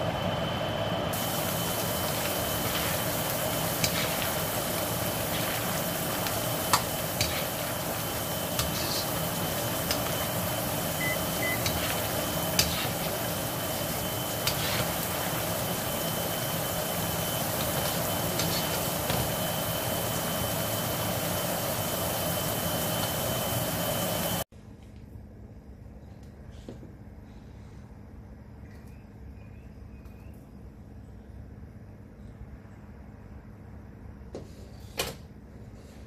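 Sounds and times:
steady hiss and hum: 0:00.0 - 0:21.8.

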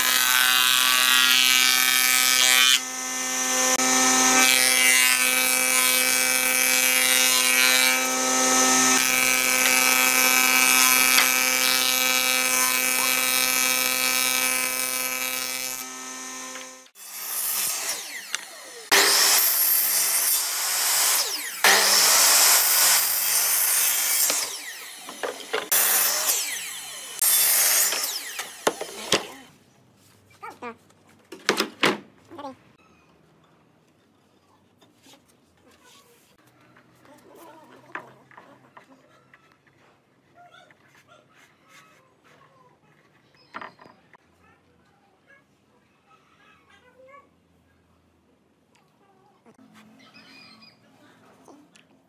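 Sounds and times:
thickness planer shaving wood: 0:00.0 - 0:29.4
miter saw cutting: 0:00.0 - 0:29.5.

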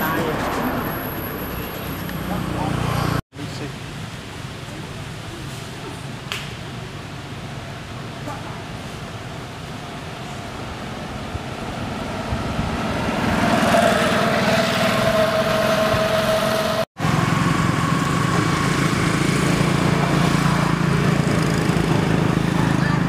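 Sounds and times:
small engine running: 0:15.8 - 0:23.0.

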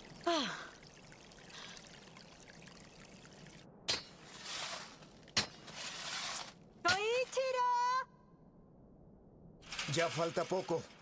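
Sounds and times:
water running from a pipe: 0:00.0 - 0:03.6.

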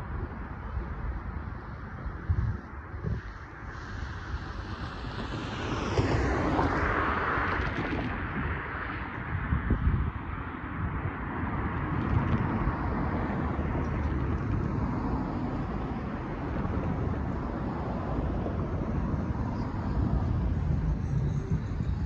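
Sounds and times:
cars driving by: 0:00.0 - 0:22.0.

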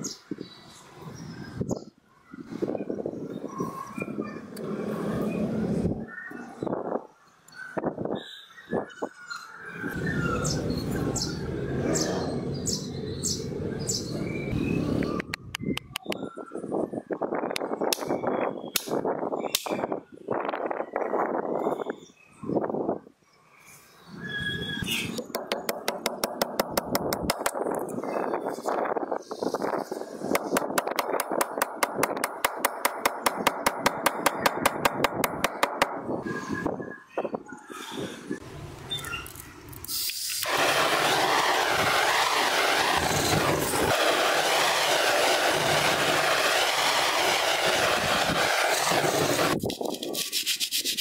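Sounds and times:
sharp even clicking: 0:25.2 - 0:27.6, 0:30.4 - 0:35.9.

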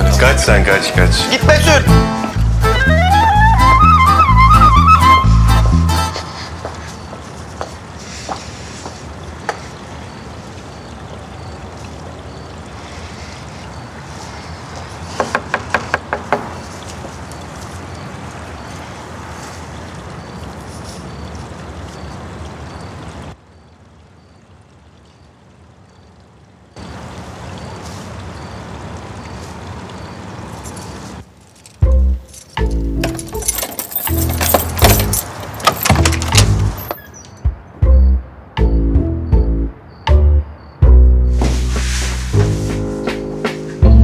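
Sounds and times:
outdoor background hiss: 0:00.0 - 0:44.0
knocking on a door: 0:15.2 - 0:16.6.

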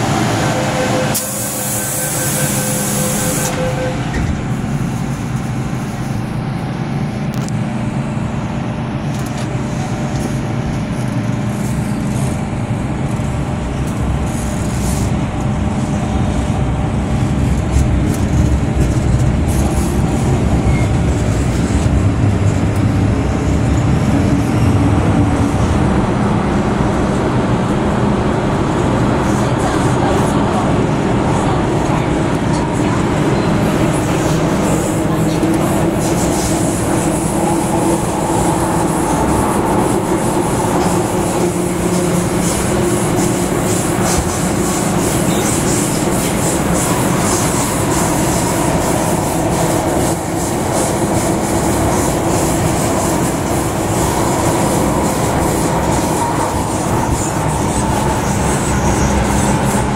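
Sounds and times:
metro train running rumble: 0:00.0 - 0:59.9.

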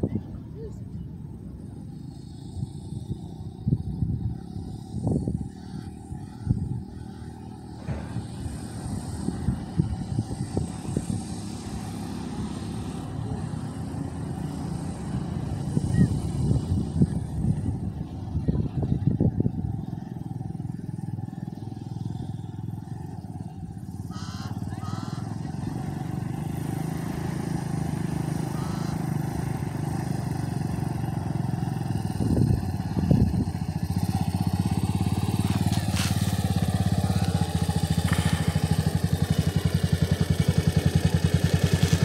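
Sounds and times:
dirt bike engine running: 0:01.2 - 0:42.0.

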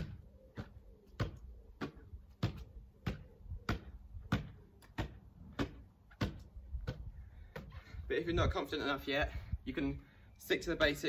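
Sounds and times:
gloved hands slapping a football: 0:00.0 - 0:07.8.

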